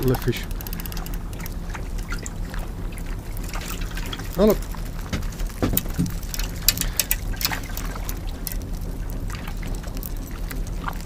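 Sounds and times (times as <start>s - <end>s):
clicks and taps of fishing rig: 0.0s - 2.1s, 5.1s - 8.6s
water lapping against boat hull: 0.0s - 11.0s.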